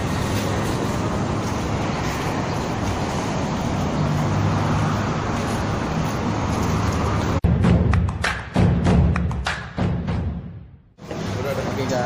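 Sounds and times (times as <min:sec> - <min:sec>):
street traffic: 0:00.0 - 0:12.0
music: 0:07.4 - 0:11.0.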